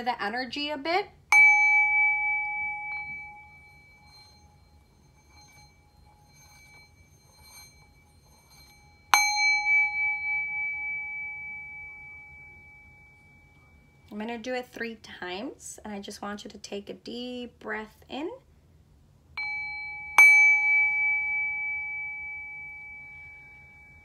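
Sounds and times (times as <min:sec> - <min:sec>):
small metal chime ringing: 0:01.3 - 0:14.5, 0:19.4 - 0:24.0.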